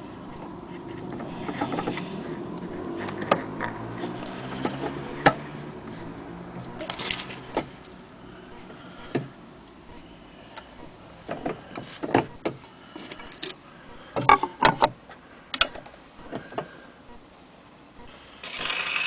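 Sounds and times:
record surface noise: 0.0 - 17.3
handling clicks and knocks: 0.2 - 5.6, 14.2 - 16.7.

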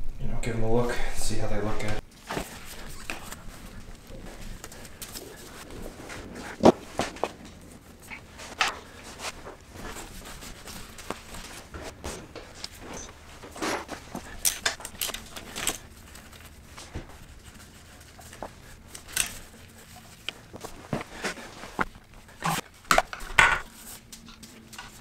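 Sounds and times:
hand tools clicking and tapping: 10.6 - 16.9, 18.2 - 19.4.

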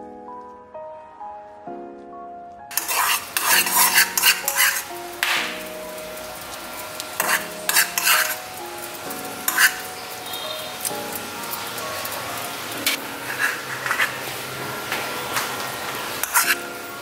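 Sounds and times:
soft background music: 0.0 - 17.0
spoon scraping in wok: 2.7 - 5.6, 6.4 - 8.6, 9.2 - 10.9, 11.5 - 14.4, 16.0 - 16.7
caramel bubbling and sizzling: 2.7 - 17.0.

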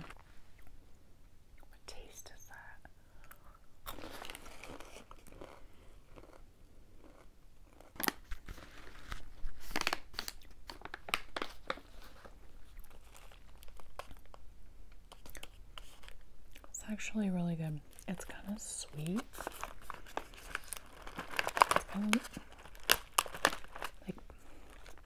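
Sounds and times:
crunchy chewing of snack: 3.3 - 14.4, 15.0 - 16.7, 19.3 - 25.0.

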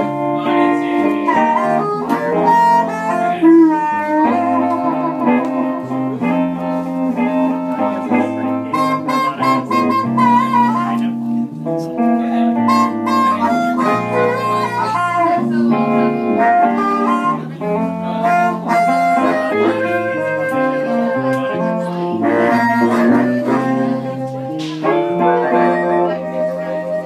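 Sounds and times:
harmonica long held notes: 0.0 - 11.8, 12.6 - 27.0
blues band playing: 0.0 - 27.0.

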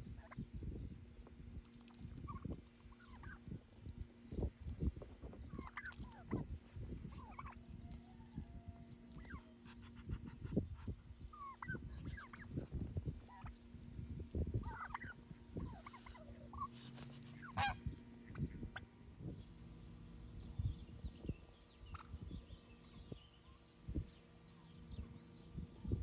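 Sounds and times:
wind gusting against microphone: 3.2 - 19.4
poultry calls: 7.1 - 8.4, 14.6 - 18.8.

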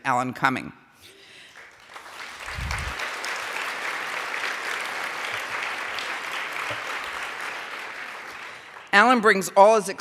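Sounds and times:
audience applauding: 1.5 - 9.0.

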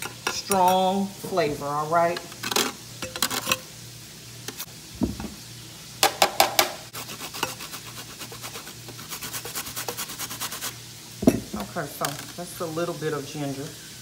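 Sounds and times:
spoon scraping dish: 7.2 - 10.6.

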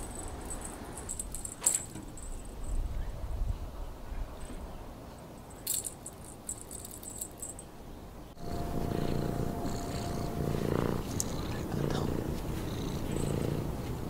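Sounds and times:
light jingling rattles: 0.0 - 3.0, 5.3 - 7.8, 12.7 - 13.6
cat purring: 8.4 - 14.0.

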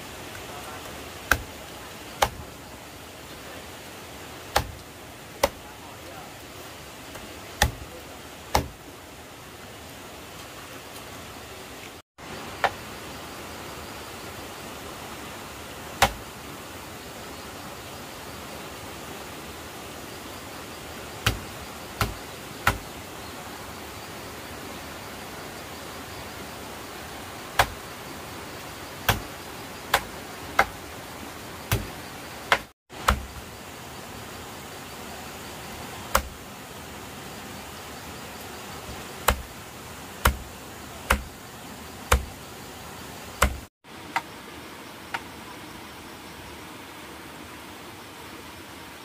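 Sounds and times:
steady hiss: 0.0 - 49.0
sharp knocks: 8.5 - 8.8, 31.7 - 31.9, 39.2 - 39.5, 42.1 - 42.3, 43.4 - 43.7.

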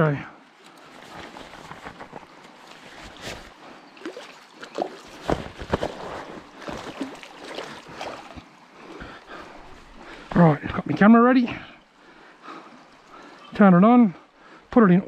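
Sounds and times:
water splashing and sloshing: 0.4 - 14.7
knocks and rustles from gear: 1.1 - 3.5, 5.1 - 7.1.

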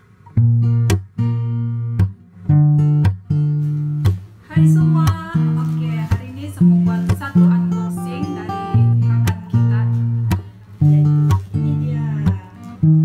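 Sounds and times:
acoustic guitar strumming chords: 0.0 - 13.0.

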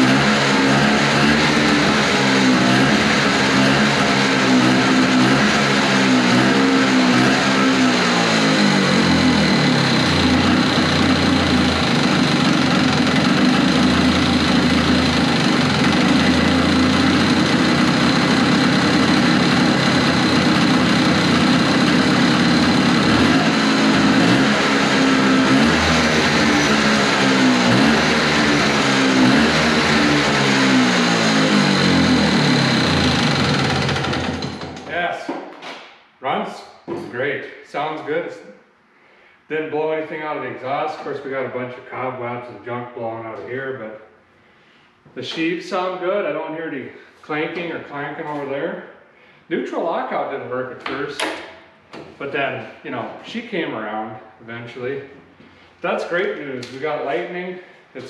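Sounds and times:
snowmobile engine revving: 0.0 - 35.0.

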